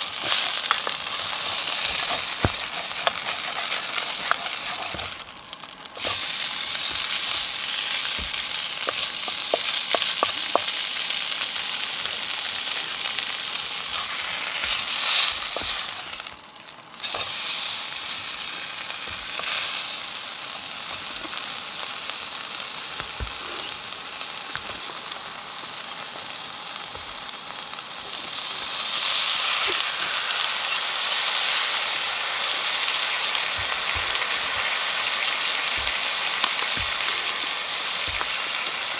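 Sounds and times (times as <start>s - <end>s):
steak sizzling in a pan: 0.0s - 38.9s
wooden spatula scraping a pan: 0.2s - 5.2s.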